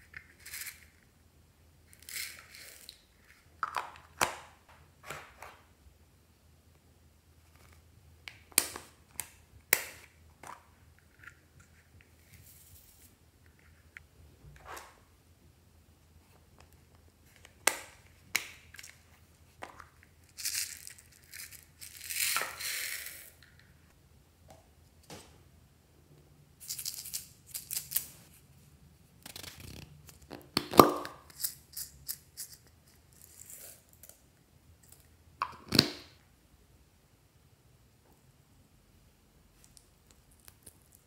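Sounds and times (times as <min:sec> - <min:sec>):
plastic capsule snapping open: 0:29.3 - 0:31.4, 0:35.4 - 0:36.1.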